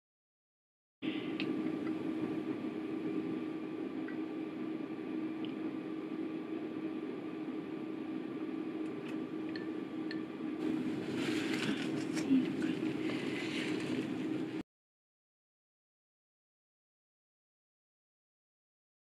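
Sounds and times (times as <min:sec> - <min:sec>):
steady low hum: 0:01.0 - 0:14.6.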